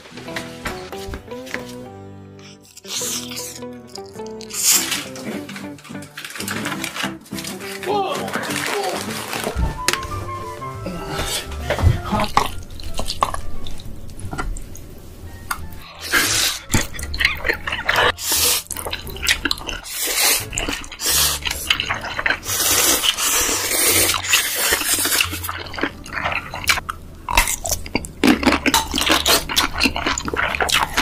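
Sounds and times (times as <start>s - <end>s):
noodles slurped and chewed: 2.4s - 9.6s, 15.8s - 31.0s.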